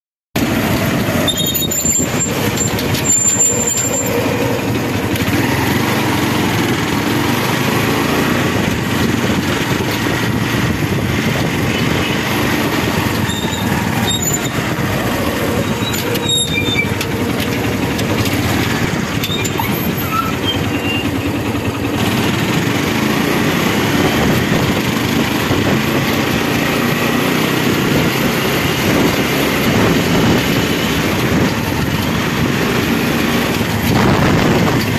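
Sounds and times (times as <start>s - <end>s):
vehicle engine and road noise: 0.4s - 34.9s.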